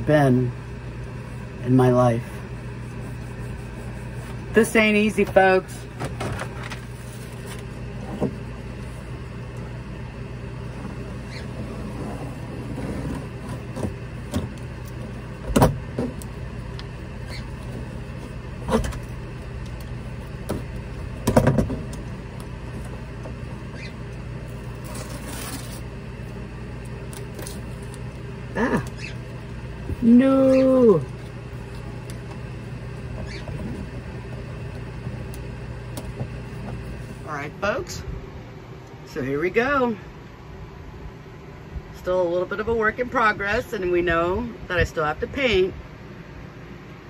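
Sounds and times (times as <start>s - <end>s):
steady low hum: 0.0s - 47.0s
contact paper crinkling and knocking: 6.0s - 8.4s.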